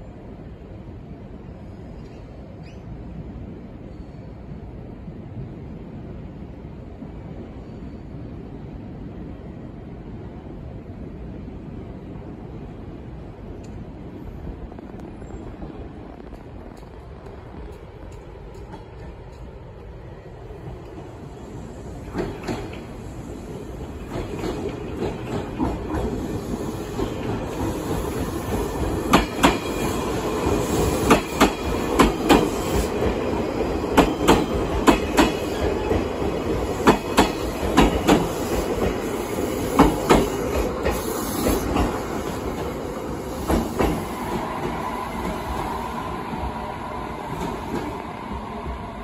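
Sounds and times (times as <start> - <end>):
train wheels clattering over rails: 22.0 - 23.1, 23.7 - 46.6.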